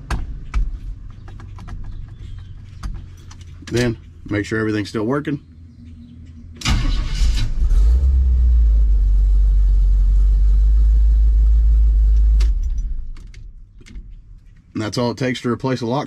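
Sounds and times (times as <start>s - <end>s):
truck engine starting and idling: 3.3s - 13.7s.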